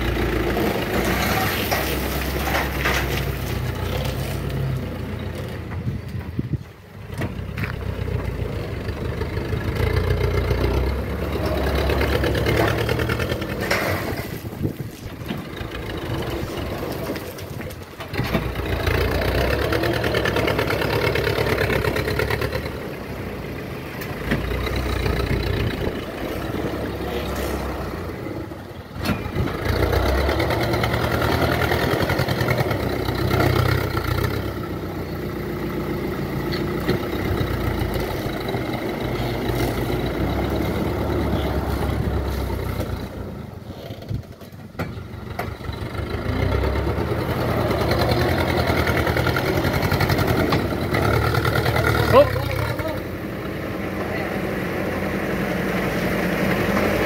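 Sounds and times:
truck engine revving: 0:00.0 - 0:05.8, 0:07.0 - 0:57.0
gravel tipping: 0:00.2 - 0:08.5, 0:12.6 - 0:18.8.

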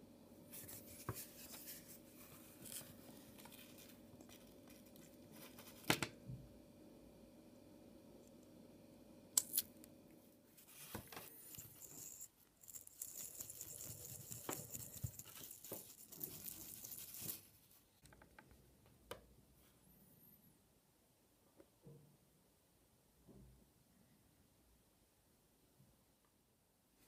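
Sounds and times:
toothbrush scratchy brushing: 0:11.4 - 0:17.5.

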